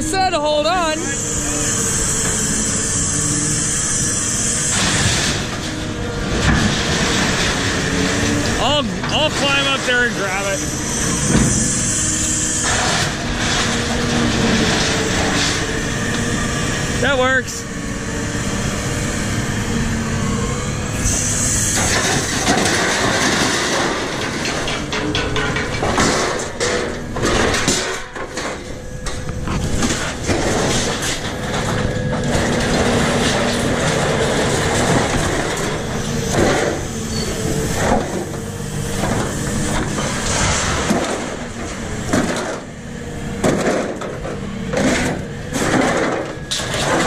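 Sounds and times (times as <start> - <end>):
crane engine and hydraulic noise: 0.0 - 47.0
scrap metal scraping: 0.8 - 17.0, 20.9 - 47.0
metal clattering and knocking: 21.8 - 36.8.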